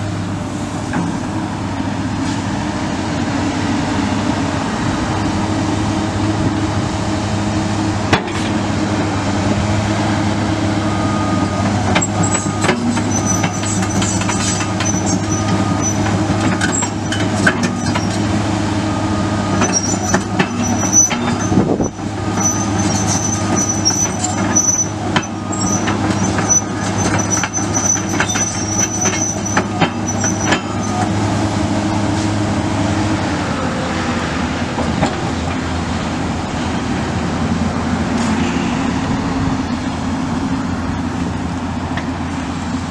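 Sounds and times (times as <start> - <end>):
excavator diesel engine running: 0.0 - 42.9
high metal squeal: 12.0 - 18.2, 19.6 - 31.1, 38.2 - 39.2.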